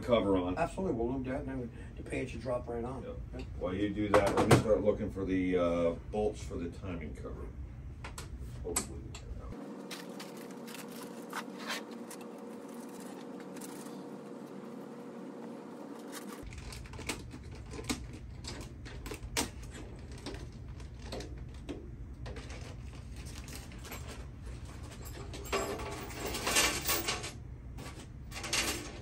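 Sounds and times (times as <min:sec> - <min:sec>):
metal tools clinking: 0:23.2 - 0:29.0.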